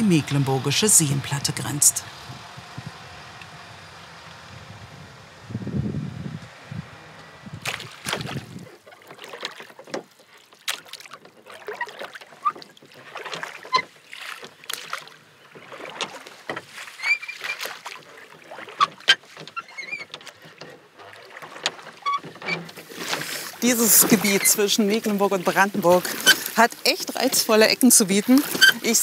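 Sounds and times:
birds chirping: 0.0 - 5.8
water splashing: 0.0 - 5.8, 6.4 - 29.0.

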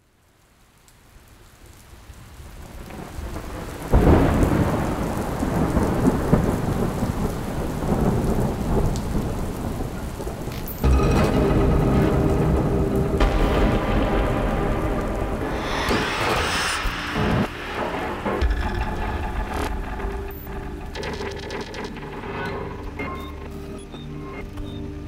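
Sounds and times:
heavy rain: 0.0 - 25.0
thunder rumbling: 2.7 - 23.4
thunder crack: 2.9 - 23.2
steady tones: 10.8 - 23.9.

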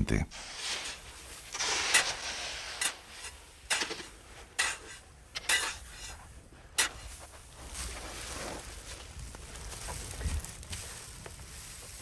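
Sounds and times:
tools scraping coarse salt: 0.4 - 8.7.

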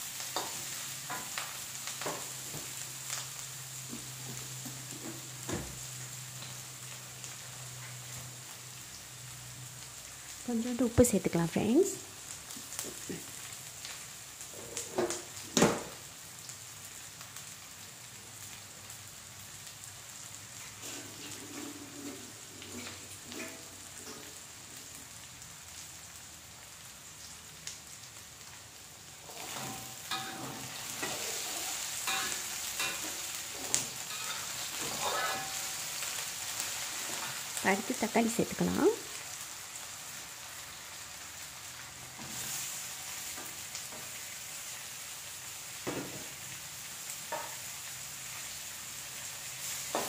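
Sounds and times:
vegetables sizzling in oil: 0.0 - 50.0
metal ladle scraping pan: 20.8 - 24.3, 29.3 - 35.8.

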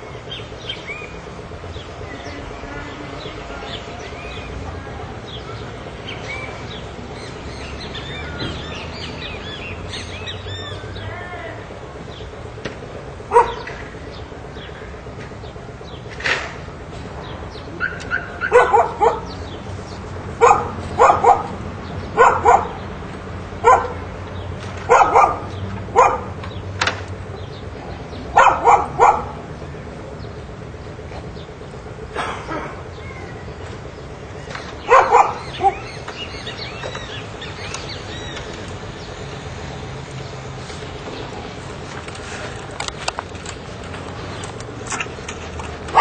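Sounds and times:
birds chirping: 0.0 - 46.0
steady low hum: 0.0 - 46.0
dog barking: 13.3 - 13.7, 17.8 - 19.4, 20.4 - 21.6, 22.2 - 22.8, 23.6 - 24.0, 24.9 - 26.4, 28.4 - 29.4, 34.8 - 35.9.

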